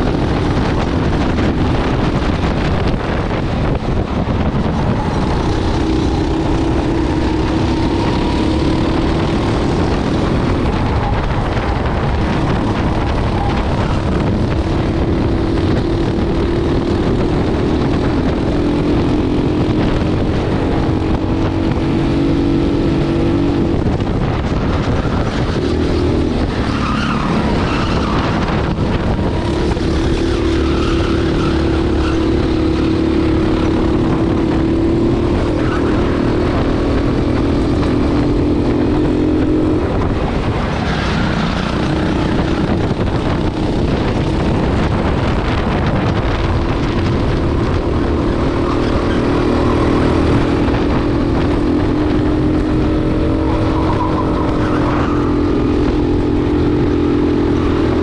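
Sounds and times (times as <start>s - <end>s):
racing kart engine revving: 0.0s - 58.0s.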